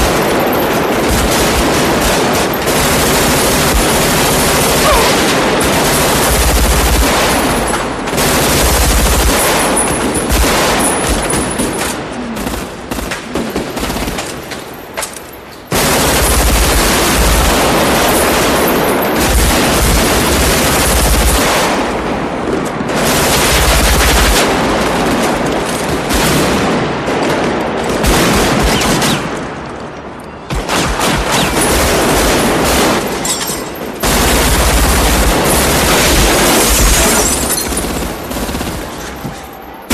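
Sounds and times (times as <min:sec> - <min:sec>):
automatic rifle fire: 0:00.0 - 0:14.4.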